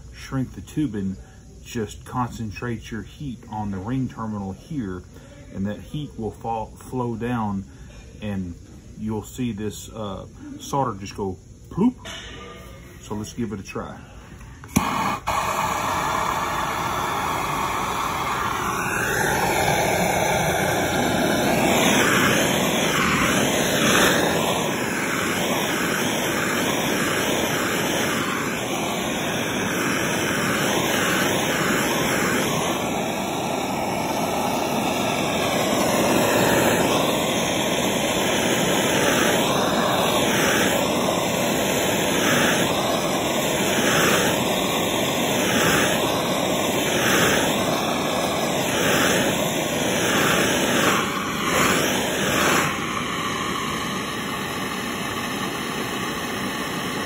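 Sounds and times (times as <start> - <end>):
heat gun blowing hiss: 0.0 - 57.0.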